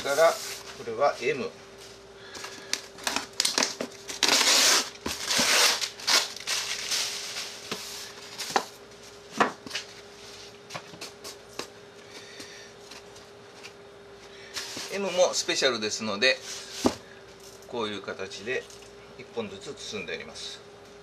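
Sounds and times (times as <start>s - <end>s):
foam box lid rustling and scraping: 0.0s - 0.8s, 4.2s - 8.7s
faint steady hum: 0.0s - 21.0s.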